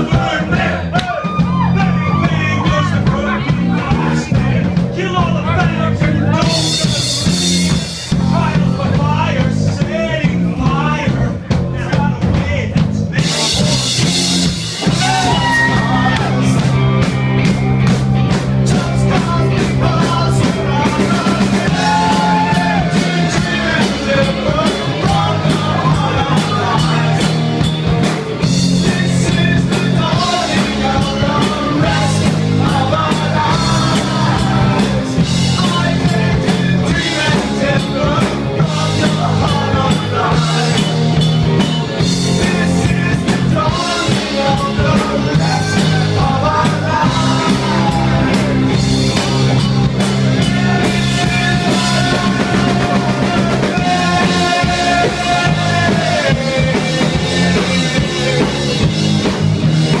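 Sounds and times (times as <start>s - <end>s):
loud rock music: 0.0s - 60.0s
pounding drum kit: 0.0s - 60.0s
person singing: 18.5s - 27.7s, 28.7s - 59.0s.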